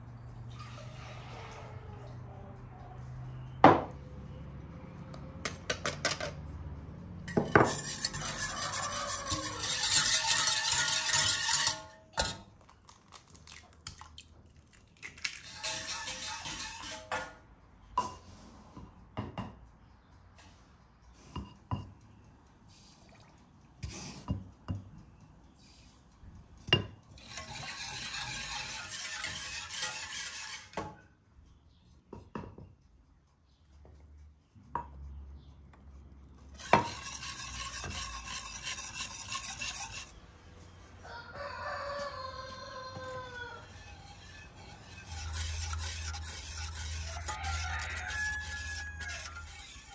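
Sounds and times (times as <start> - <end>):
whisk clinking against pan: 7.3 - 12.4, 15.3 - 17.1, 26.8 - 30.7, 36.6 - 40.2, 43.8 - 49.9
whisk scraping saucepan: 7.3 - 13.6, 15.2 - 17.3, 27.2 - 30.9, 36.6 - 40.2, 43.0 - 49.9
rooster crowing: 8.2 - 9.8, 41.0 - 43.8, 47.0 - 49.6.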